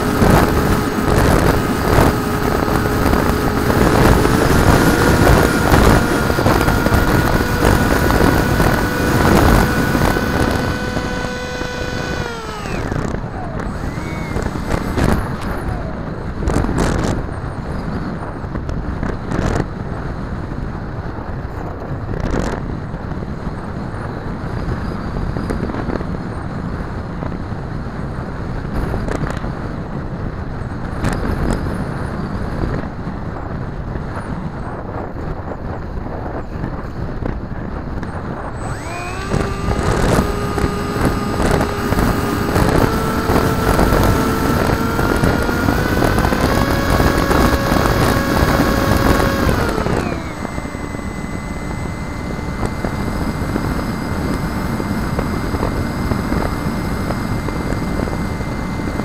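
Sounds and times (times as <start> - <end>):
electric motor and propeller whining: 0.0 - 19.7, 36.5 - 59.0
wind rushing over microphone: 0.0 - 59.0.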